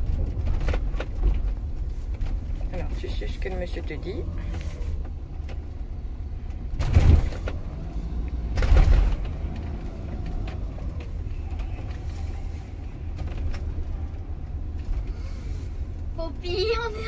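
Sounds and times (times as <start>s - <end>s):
loud rumbling bumps: 0.0s - 17.0s
vehicle engine running at low speed: 0.0s - 17.0s.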